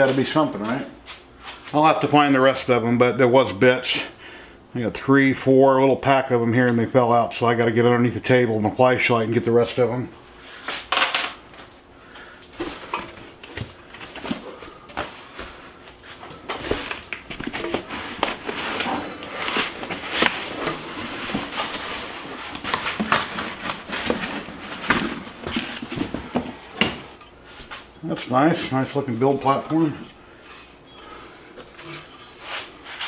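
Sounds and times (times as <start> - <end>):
cardboard and foam rustling: 12.6 - 33.0.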